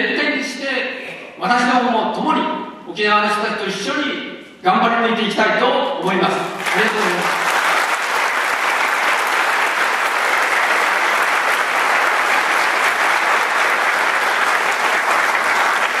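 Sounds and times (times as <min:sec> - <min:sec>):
audience applauding: 0:06.6 - 0:16.0.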